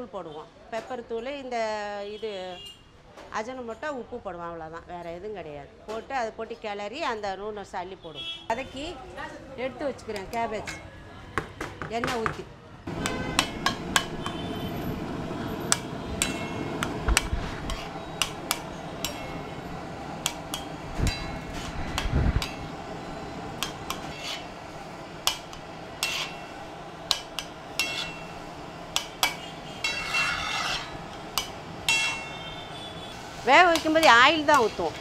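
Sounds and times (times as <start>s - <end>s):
metal spatula scraping griddle: 16.2s - 19.6s, 20.2s - 22.7s, 23.6s - 28.4s, 29.0s - 35.0s.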